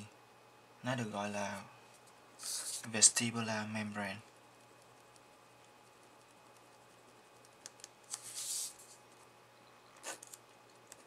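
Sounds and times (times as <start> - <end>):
paper rustling: 8.1 - 9.0
paper sliding across wooden desk: 8.1 - 9.0.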